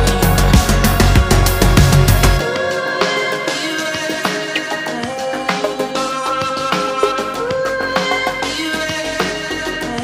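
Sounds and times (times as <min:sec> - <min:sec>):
heavy bass line: 0:00.0 - 0:03.3
steady drum beat: 0:00.0 - 0:10.0.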